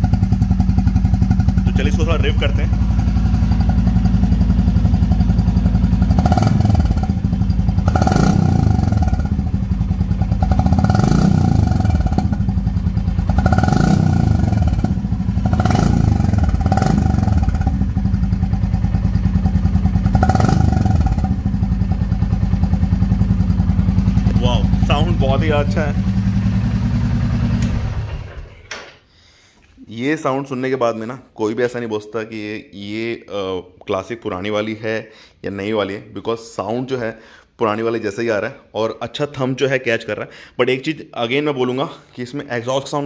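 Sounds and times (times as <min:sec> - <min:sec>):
motorcycle engine idling and revving: 0:00.0 - 0:28.6.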